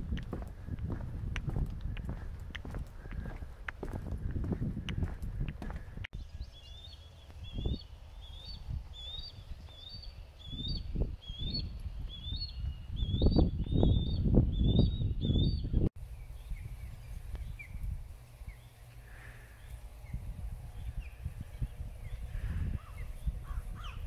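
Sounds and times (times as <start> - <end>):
footsteps on wooden boardwalk: 0.0 - 6.1.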